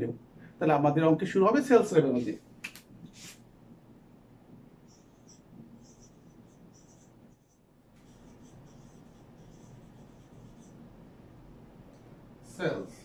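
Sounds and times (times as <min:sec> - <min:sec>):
marker squeaking on whiteboard: 0:04.8 - 0:10.8.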